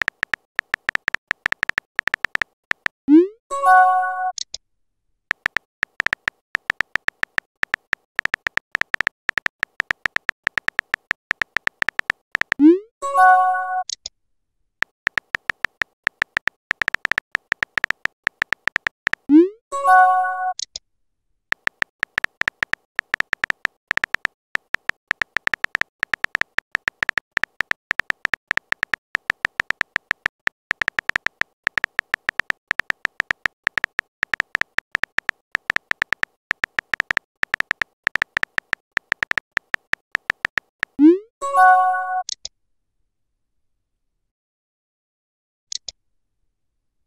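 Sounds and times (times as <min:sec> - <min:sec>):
phone keyboard tap clicks: 0:00.0 - 0:03.0, 0:05.3 - 0:12.6, 0:15.1 - 0:19.3, 0:21.5 - 0:41.0.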